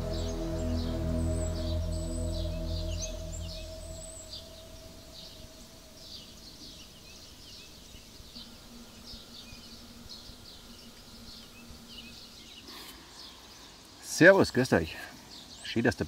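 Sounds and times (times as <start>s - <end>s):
music track: 0.0s - 6.4s
faint hiss: 0.0s - 16.0s
small birds chirping: 0.0s - 16.0s.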